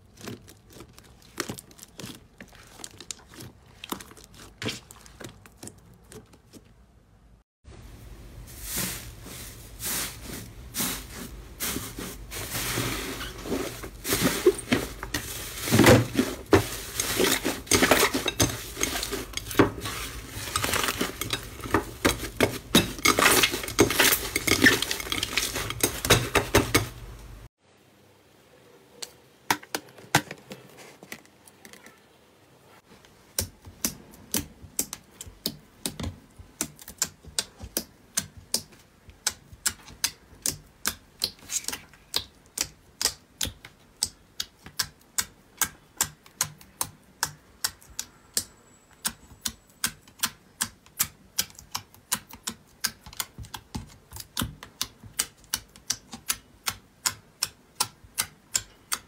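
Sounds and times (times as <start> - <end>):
slime crackling and popping: 0.0 - 6.6
slime clicking and squishing: 0.0 - 6.8, 33.3 - 59.0.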